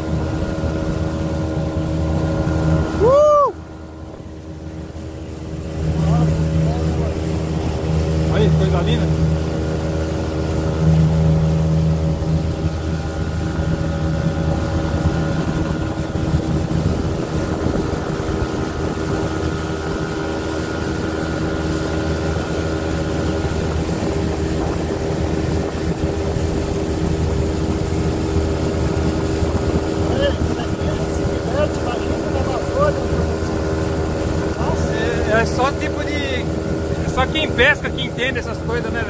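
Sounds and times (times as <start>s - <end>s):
outboard motor running: 0.0s - 39.0s
water rushing: 0.0s - 39.0s.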